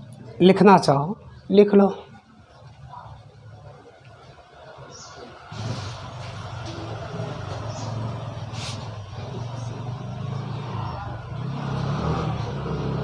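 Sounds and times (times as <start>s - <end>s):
vehicle engine rumbling: 2.1s - 13.0s.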